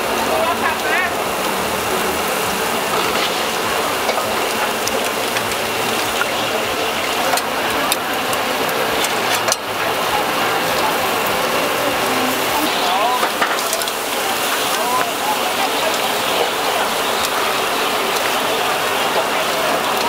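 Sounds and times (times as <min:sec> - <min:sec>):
seafood sizzling on a grill: 0:00.0 - 0:20.0.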